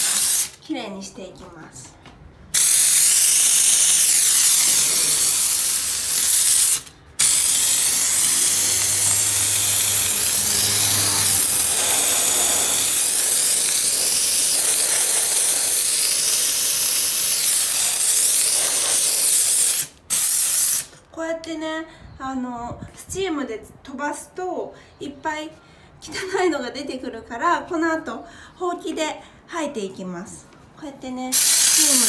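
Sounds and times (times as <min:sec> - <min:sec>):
steam jet hissing: 0:00.0 - 0:00.6, 0:02.5 - 0:20.9, 0:31.3 - 0:32.0.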